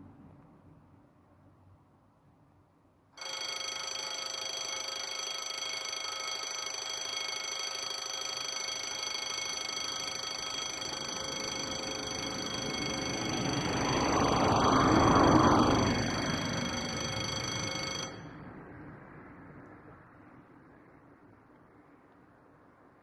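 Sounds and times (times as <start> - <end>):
level-crossing warning bells: 3.2 - 18.7.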